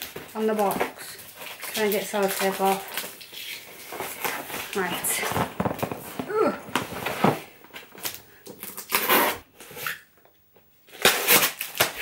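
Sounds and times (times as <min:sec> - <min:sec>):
packing tape ripping off box: 0:08.0 - 0:10.0, 0:10.9 - 0:12.0.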